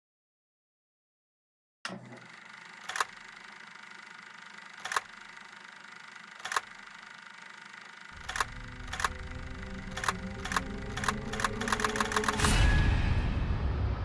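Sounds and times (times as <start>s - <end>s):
low fast mechanical clatter: 1.9s - 12.4s
sharp clicks: 4.8s - 5.2s, 6.4s - 6.8s, 8.2s - 12.5s.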